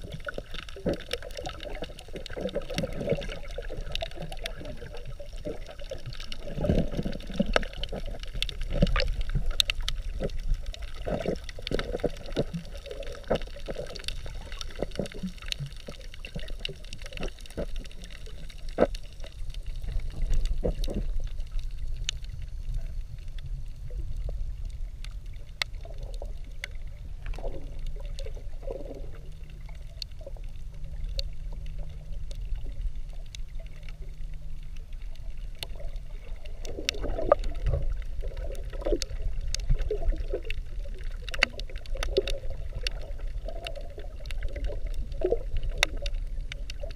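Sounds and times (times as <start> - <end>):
sharp underwater clicks: 0.0 - 23.5, 24.2 - 46.9
water sloshing and gurgling: 0.0 - 46.9
steady low rumble: 17.5 - 41.0.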